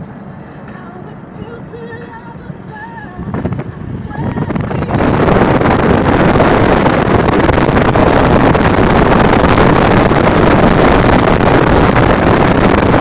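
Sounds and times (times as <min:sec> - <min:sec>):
vehicle moving on runway: 0:00.0 - 0:13.0
wind buffeting microphone: 0:03.0 - 0:13.0.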